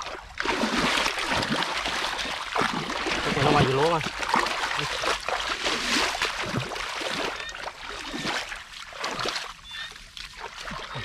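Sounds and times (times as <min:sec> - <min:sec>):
hands splashing in muddy water: 0:00.0 - 0:11.0.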